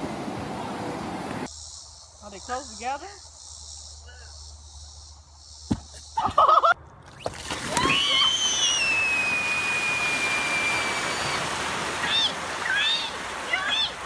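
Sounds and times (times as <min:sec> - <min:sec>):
water rushing across lawn: 0:00.0 - 0:01.5, 0:07.1 - 0:14.0
long high scream: 0:07.7 - 0:13.0.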